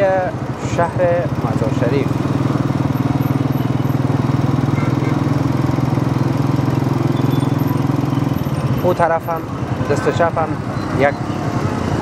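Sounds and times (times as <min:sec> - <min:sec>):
small engine running: 0:01.3 - 0:09.5.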